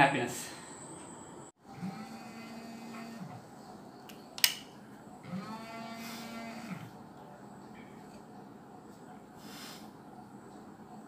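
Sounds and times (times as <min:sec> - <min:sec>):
cow mooing: 0:01.7 - 0:03.4
sharp click: 0:04.1 - 0:04.7.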